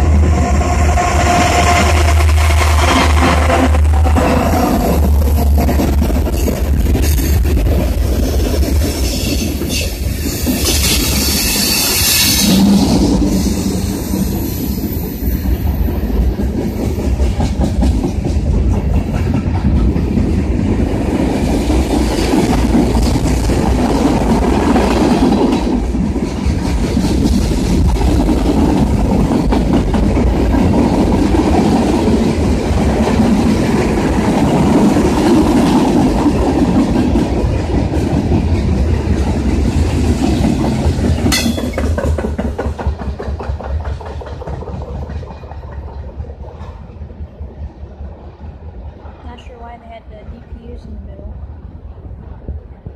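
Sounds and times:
train wheels rumbling on rail: 0.0 - 52.9
wheels clacking over rail joints: 15.4 - 47.0.

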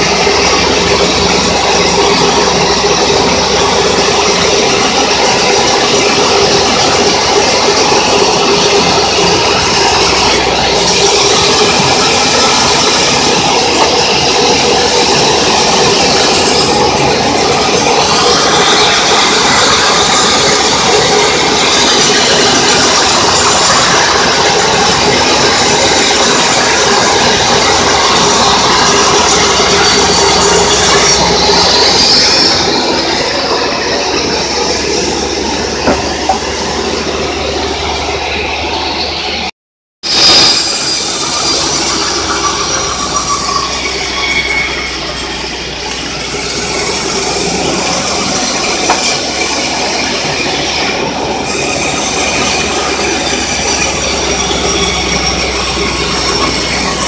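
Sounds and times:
sawmill sawing a board: 0.0 - 38.7, 40.0 - 57.0.

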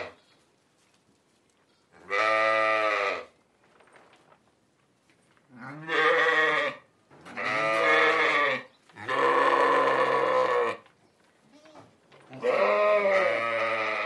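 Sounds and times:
sheep bleating: 2.0 - 3.3, 5.6 - 6.8, 7.4 - 10.8, 11.5 - 14.0.

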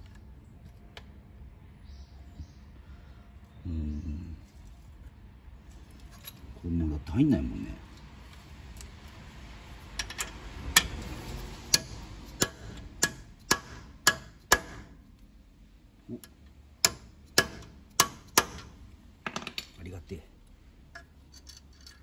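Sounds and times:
hammer tapping metal: 11.6 - 15.0, 16.2 - 19.7.

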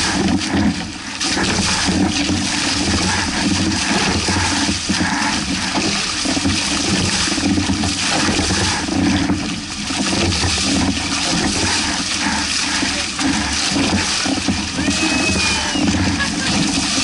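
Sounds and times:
water rushing along hulls: 0.0 - 17.0.

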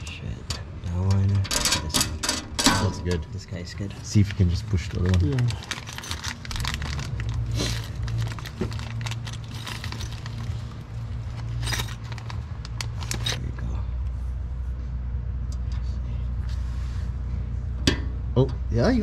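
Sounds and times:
steady low hum: 0.0 - 19.0
metallic clicking and clinking: 11.3 - 13.4.

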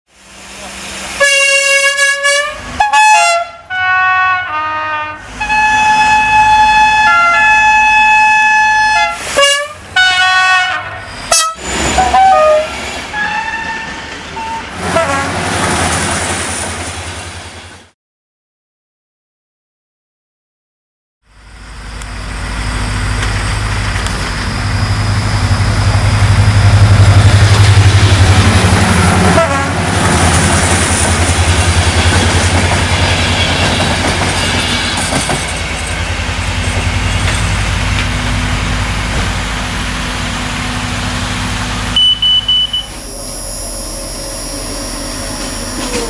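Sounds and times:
diesel locomotive droning: 0.1 - 17.9, 21.2 - 46.0
short gliding tone: 34.4 - 46.0.

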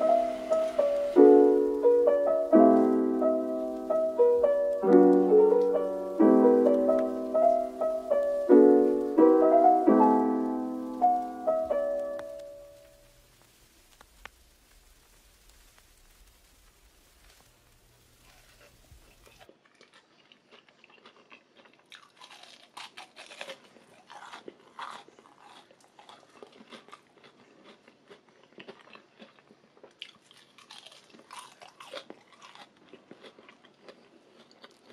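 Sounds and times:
crunchy food chewing: 15.2 - 34.9.

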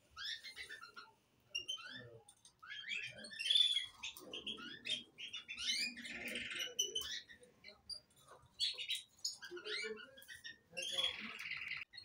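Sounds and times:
canaries chirping: 0.0 - 12.0
rapid bird trill: 8.6 - 12.0.

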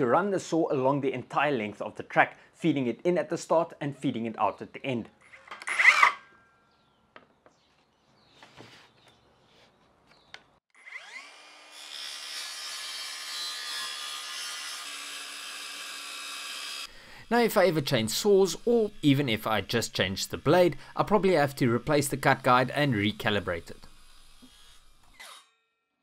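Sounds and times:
circular saw whining: 5.2 - 6.7, 10.7 - 25.7.

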